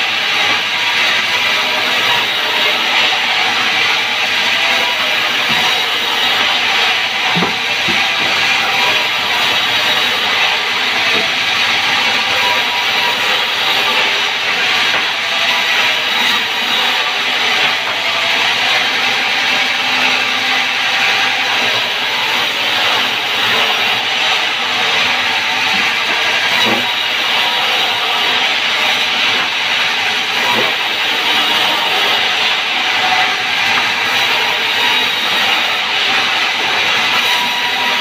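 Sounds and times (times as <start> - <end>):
band saw cutting wood: 0.0 - 38.0
timber knocks: 7.3 - 8.3.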